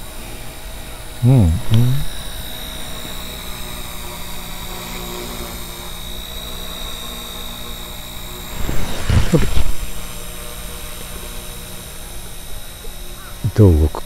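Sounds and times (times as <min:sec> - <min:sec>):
toy helicopter rotor whine: 0:00.0 - 0:14.0.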